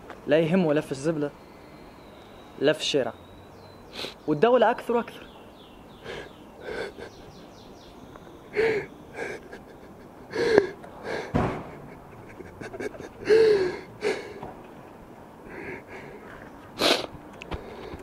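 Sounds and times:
young man sobbing: 6.0s - 7.5s, 8.5s - 14.4s, 15.4s - 16.2s.

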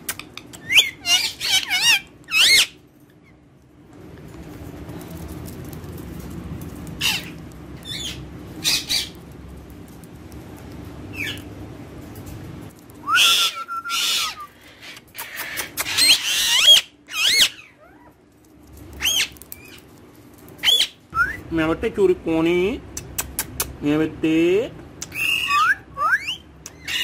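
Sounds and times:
parakeet squawking and chirping: 0.1s - 3.4s, 6.9s - 9.2s, 11.1s - 11.6s, 13.2s - 18.2s, 18.9s - 19.9s, 20.6s - 21.1s, 25.1s - 27.0s
parakeet whistle: 13.1s - 14.5s, 25.1s - 27.0s.

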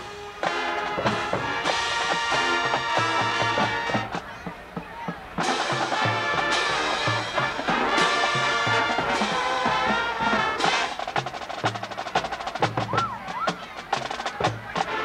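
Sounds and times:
brass chords: 0.0s - 4.4s, 5.3s - 12.5s, 14.6s - 15.0s.

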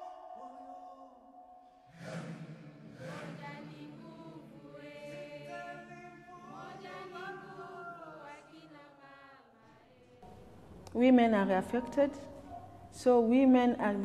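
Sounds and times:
voices singing softly together: 0.0s - 10.5s.

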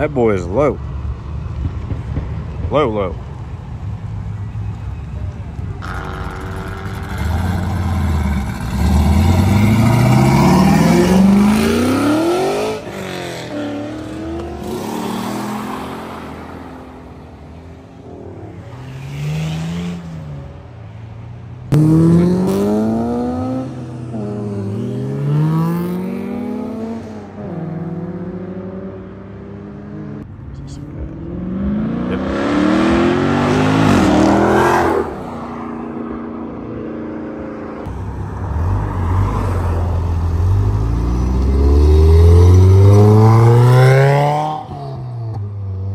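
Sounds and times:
car engine revving: 5.8s - 20.7s, 21.6s - 35.6s, 37.9s - 45.6s.

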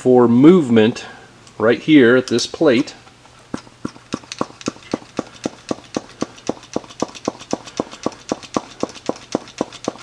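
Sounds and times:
hand vacuum pump clicking: 3.5s - 10.0s.

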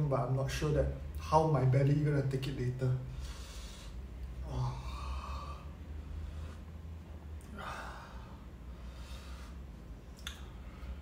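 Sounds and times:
man breathing out hard: 3.1s - 6.7s, 7.5s - 9.7s.

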